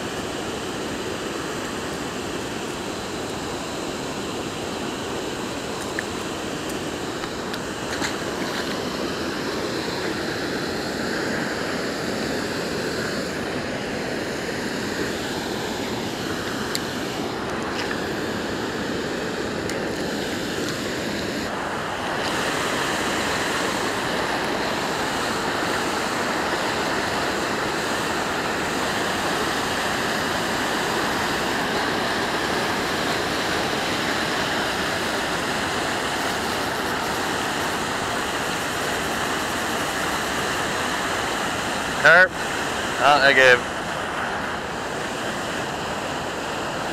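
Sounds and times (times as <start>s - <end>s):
water rushing over a weir: 0.0s - 46.9s.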